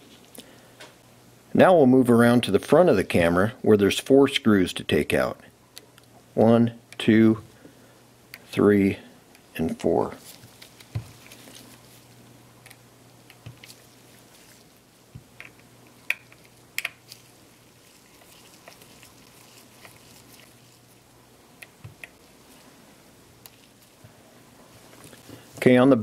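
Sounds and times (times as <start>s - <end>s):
faint low hum: 0.0s - 26.0s.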